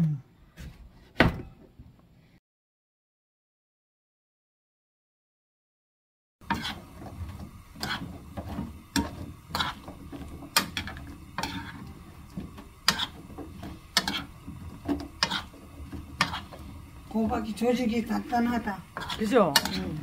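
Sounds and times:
metal spoon scraping a frying pan: 0:06.4 - 0:17.1, 0:18.6 - 0:20.0.

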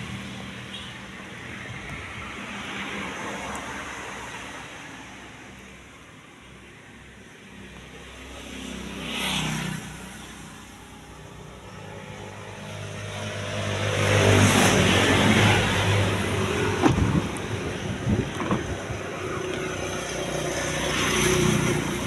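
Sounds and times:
vehicles passing by: 0:00.0 - 0:22.0
sharp knocks: 0:16.8 - 0:17.3.

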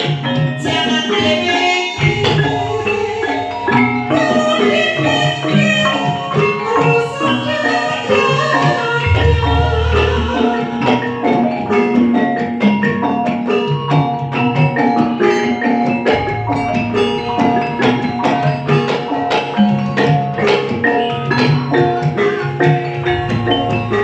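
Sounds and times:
gamelan mallet percussion: 0:00.0 - 0:24.0
low hum: 0:09.1 - 0:10.6.

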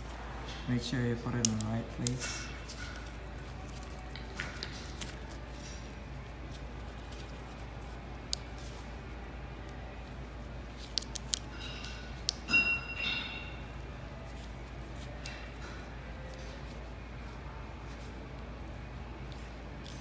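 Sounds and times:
steady low hum: 0:00.0 - 0:20.0
metallic clicks and clinks: 0:10.9 - 0:13.6.

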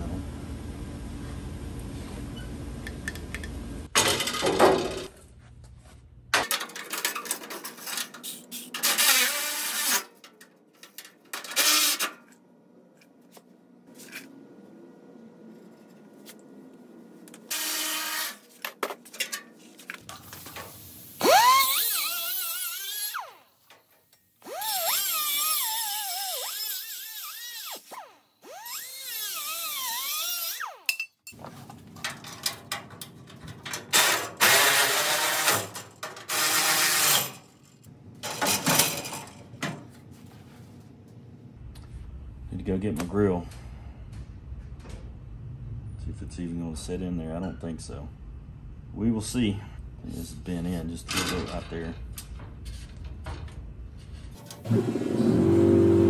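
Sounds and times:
cut-off wheel cutting steel: 0:08.2 - 0:10.2, 0:11.4 - 0:12.3, 0:17.4 - 0:18.6, 0:20.6 - 0:30.9, 0:33.9 - 0:37.5, 0:54.4 - 0:56.0.

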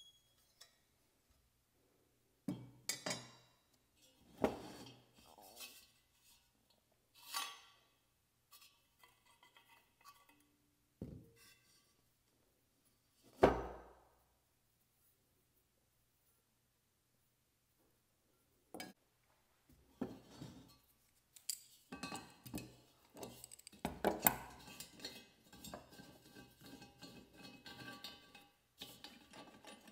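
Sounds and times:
metal parts clinking: 0:23.3 - 0:23.8.

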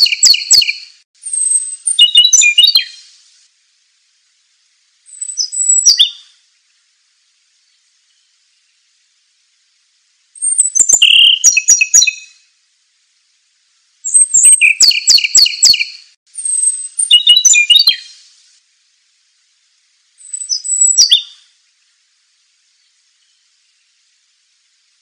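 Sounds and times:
songbird whistles and trills: 0:00.0 - 0:03.2, 0:05.1 - 0:06.4, 0:10.4 - 0:12.5, 0:14.0 - 0:18.3, 0:20.2 - 0:21.6.

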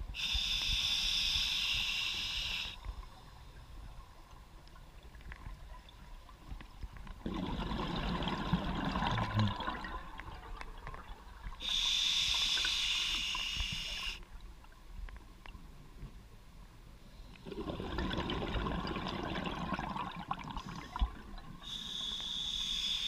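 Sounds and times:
exhaled air bubbling underwater: 0:00.0 - 0:14.6, 0:17.3 - 0:22.9
regulator inhale hiss: 0:00.1 - 0:02.9, 0:11.6 - 0:14.3, 0:20.6 - 0:23.0.

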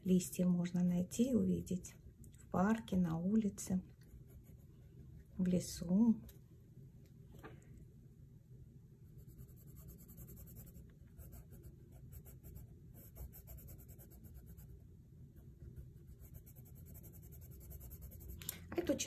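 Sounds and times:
pencil scratching on paper: 0:09.1 - 0:14.8, 0:15.4 - 0:18.4.

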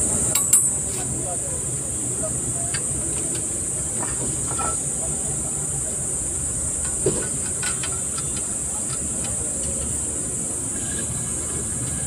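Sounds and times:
steady high hiss: 0:00.0 - 0:12.0
metal clicks and knocks: 0:06.8 - 0:10.0.

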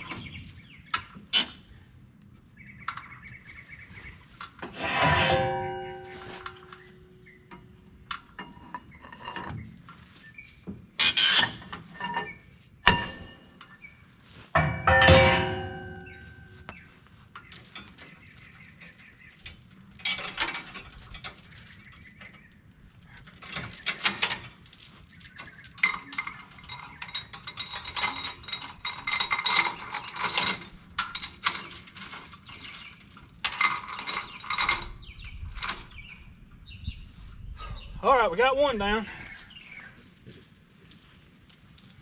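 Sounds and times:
steel chain clinking and rattling: 0:00.0 - 0:01.6, 0:14.6 - 0:16.7, 0:17.4 - 0:36.5, 0:40.0 - 0:42.0
loud metal clang: 0:04.8 - 0:06.9, 0:12.8 - 0:13.5, 0:14.6 - 0:16.5.

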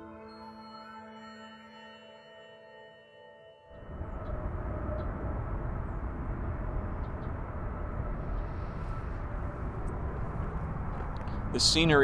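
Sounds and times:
steady low rumble: 0:03.8 - 0:12.0.

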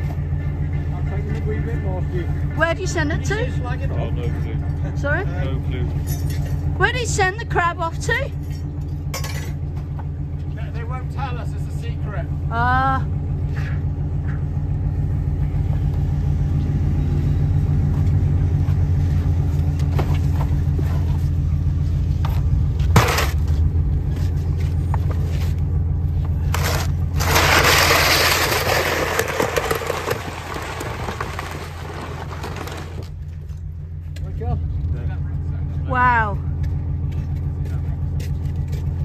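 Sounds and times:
engine humming: 0:00.0 - 0:39.0
loud scraping rush: 0:26.4 - 0:33.3.

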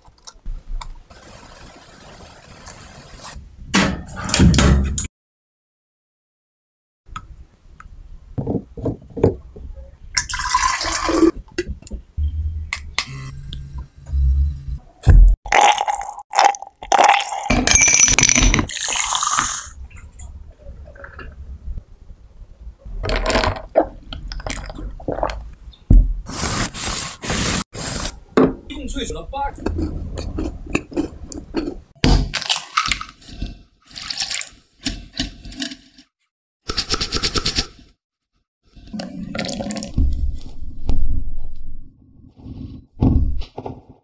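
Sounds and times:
knocks and rustles: 0:08.4 - 0:09.8.

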